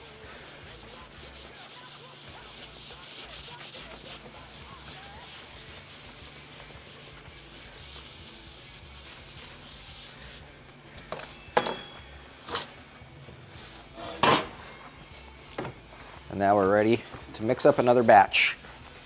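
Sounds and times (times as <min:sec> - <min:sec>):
pad scrubbing a board: 0:00.0 - 0:10.4.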